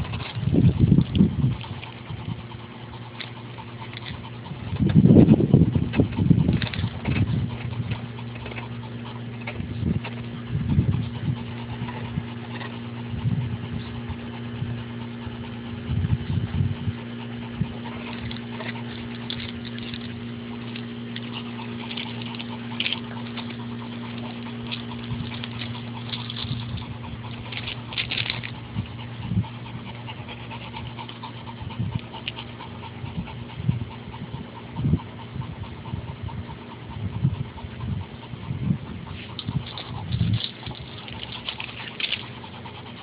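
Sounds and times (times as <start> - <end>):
low machine hum: 0.0 - 43.0
paws crunching on gravel: 39.2 - 42.6.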